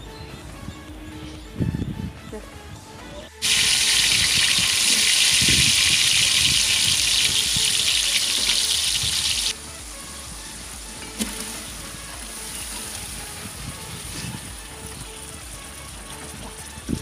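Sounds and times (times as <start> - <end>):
lentils sizzling in hot fat: 3.4 - 16.7.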